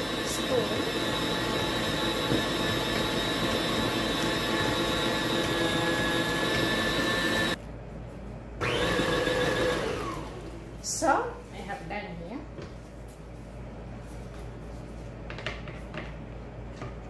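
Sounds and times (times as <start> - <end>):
stand mixer motor whine: 0.0 - 7.6, 8.6 - 10.6.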